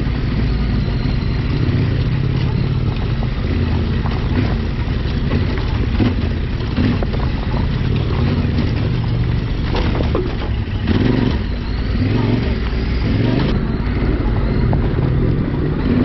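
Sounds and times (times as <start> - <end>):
motorcycle engine running: 0.0 - 16.0
tyres clattering on stones: 1.8 - 11.6.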